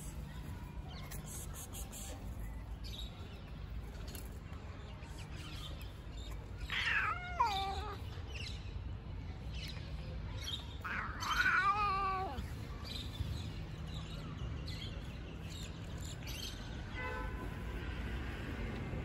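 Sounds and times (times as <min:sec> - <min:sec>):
cat meowing: 0:06.6 - 0:08.0, 0:10.8 - 0:12.5.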